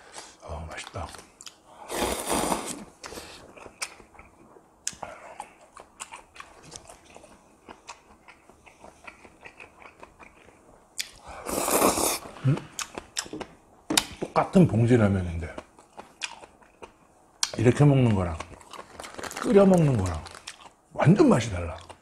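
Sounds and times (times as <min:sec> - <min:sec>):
slurping broth: 0:01.9 - 0:03.2, 0:11.4 - 0:12.4
wet chewing and crunching: 0:03.0 - 0:11.2, 0:15.4 - 0:20.8.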